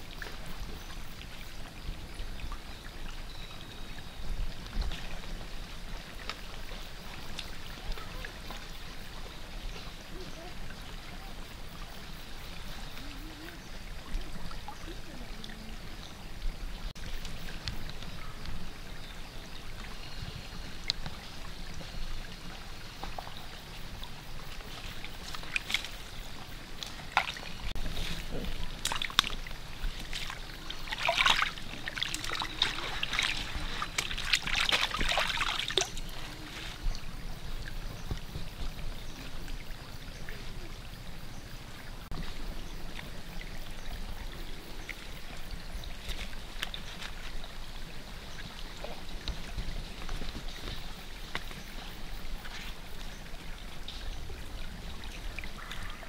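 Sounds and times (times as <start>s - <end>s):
water splashing and trickling: 0.0s - 56.0s
basket swished in water: 26.8s - 37.2s.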